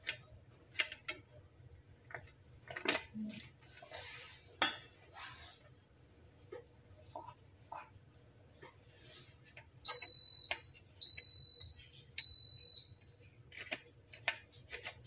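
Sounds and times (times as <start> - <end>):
spoon scraping dough: 7.0 - 9.8, 13.2 - 15.0
oven beeper beeping: 9.8 - 13.2.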